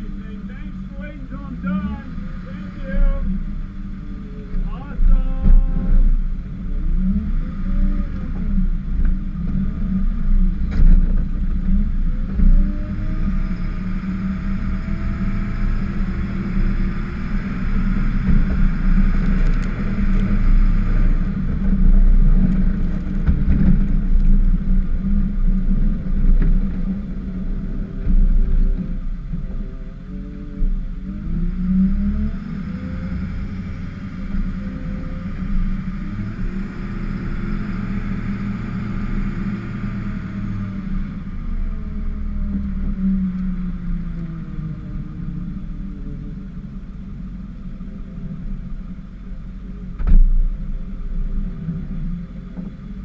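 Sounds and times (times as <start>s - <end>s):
truck engine running under load: 31.6s - 51.6s.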